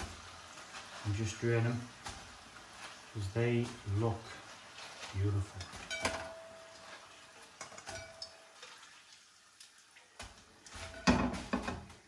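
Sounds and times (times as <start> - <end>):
metal tongs clinking against wok: 5.6 - 6.9, 7.6 - 8.4.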